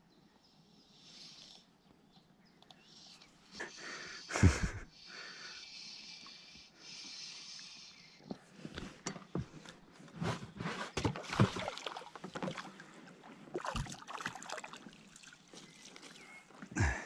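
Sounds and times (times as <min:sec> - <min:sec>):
fish splashing at surface: 0:11.0 - 0:12.8.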